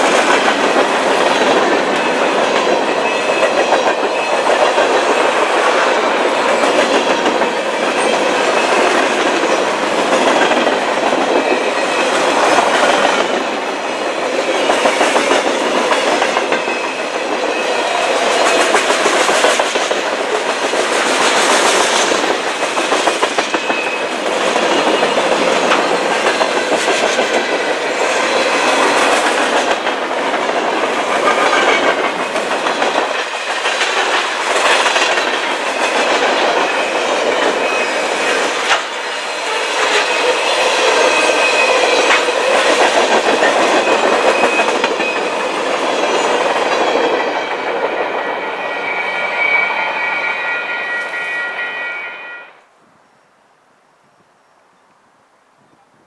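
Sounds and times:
clickety-clack over rail joints: 0.0s - 48.4s
train wheels rumbling on rails: 0.0s - 52.0s.

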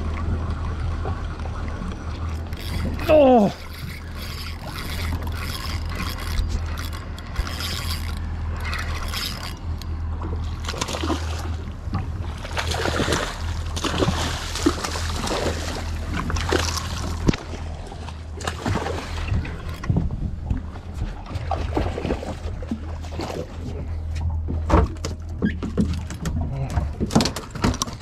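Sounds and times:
fish splashing and thrashing: 0.0s - 28.0s
low hum: 0.0s - 28.0s
spinning reel cranked: 2.3s - 9.9s.

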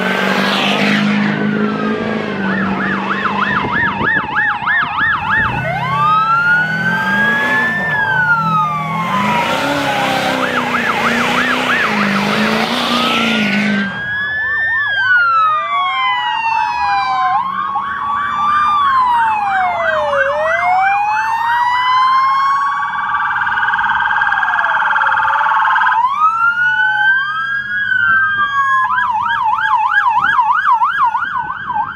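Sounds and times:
passing vehicle rushing: 0.0s - 14.5s
police sirens wailing and yelping: 0.0s - 31.9s.

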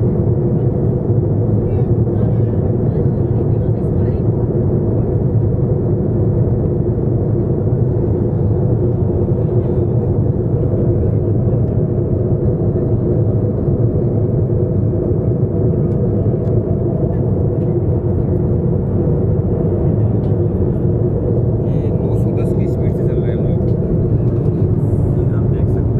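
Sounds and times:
jet airliner cabin noise: 0.0s - 25.9s.

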